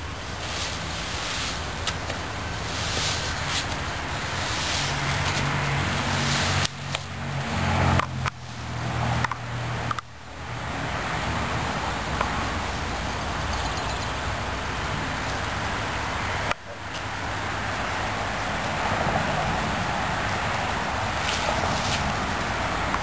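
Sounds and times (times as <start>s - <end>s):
vehicle engine humming: 0.0s - 23.0s
push broom scraping concrete: 0.4s - 7.1s.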